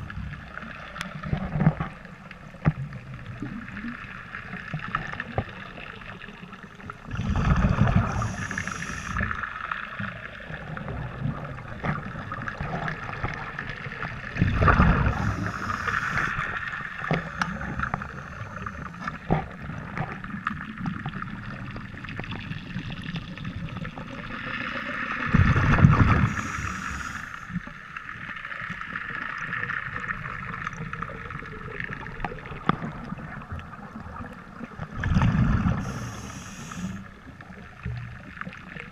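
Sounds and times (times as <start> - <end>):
steady underwater noise: 0.0 - 38.9
exhaled bubbles rushing: 6.8 - 27.4, 28.8 - 38.9
regulator hiss: 7.9 - 9.4, 15.0 - 16.6, 17.2 - 19.1, 26.2 - 27.6, 35.8 - 37.1.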